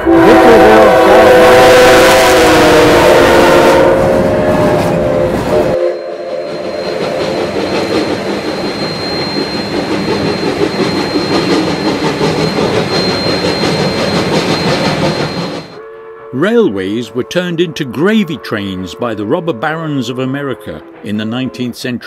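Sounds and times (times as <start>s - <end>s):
train horn chord: 0.0s - 7.6s, 15.7s - 21.9s
train clattering on rails: 4.1s - 15.8s.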